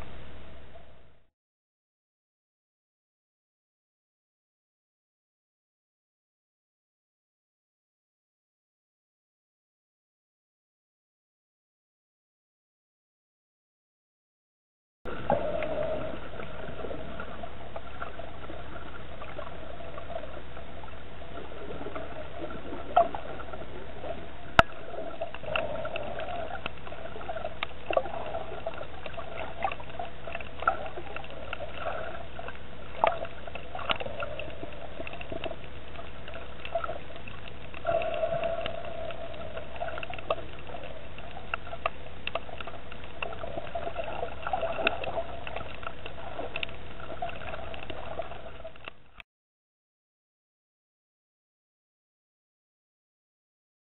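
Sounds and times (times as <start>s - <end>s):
muffled underwater rush: 15.1s - 49.2s
underwater clicks and crackles: 15.1s - 49.2s.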